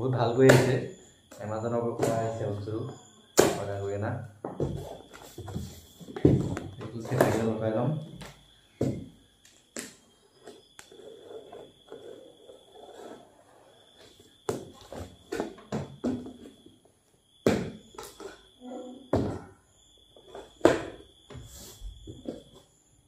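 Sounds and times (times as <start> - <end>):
knocks on cardboard: 8.8 - 9.1.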